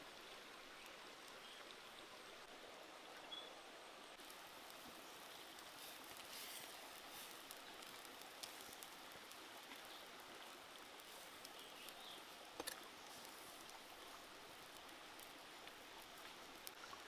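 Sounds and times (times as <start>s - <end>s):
soup bubbling in a pot: 4.1s - 17.0s
light ticks: 4.2s - 10.0s.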